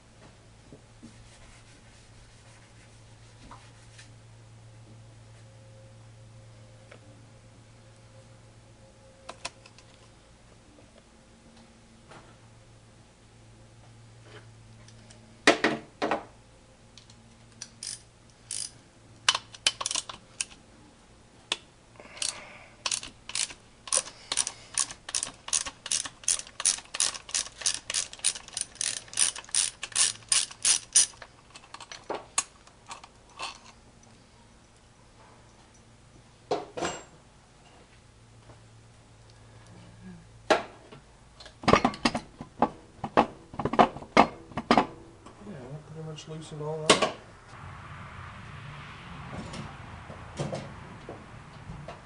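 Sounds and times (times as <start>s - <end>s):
socket ratchet clicking: 17.6s - 20.6s, 22.2s - 33.0s.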